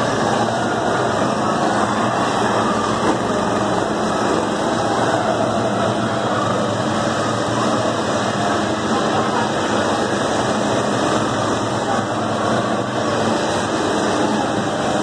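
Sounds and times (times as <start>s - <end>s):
bumper car motors droning: 0.0s - 15.0s.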